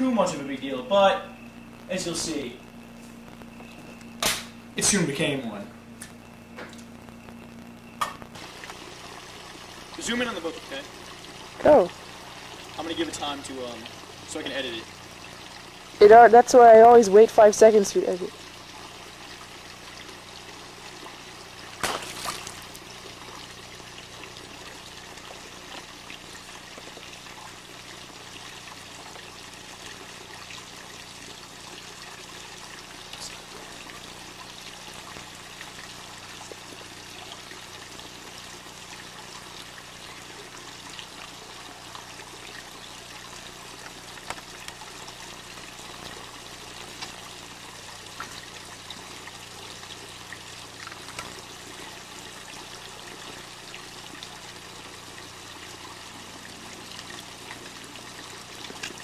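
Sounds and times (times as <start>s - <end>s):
water pouring into a pool: 8.4s - 16.0s, 18.2s - 59.0s
book splashing into water: 21.8s - 22.6s.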